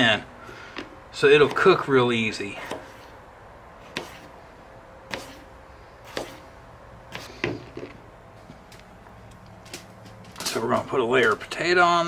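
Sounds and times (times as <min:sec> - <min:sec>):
knife slicing potato: 0:01.4 - 0:01.9, 0:02.5 - 0:03.2, 0:03.8 - 0:04.4, 0:05.1 - 0:06.5.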